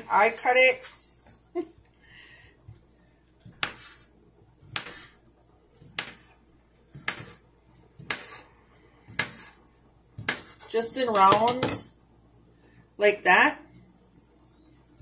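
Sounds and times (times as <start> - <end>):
knife slicing sausage: 3.4 - 5.2, 5.8 - 9.6, 10.2 - 11.4.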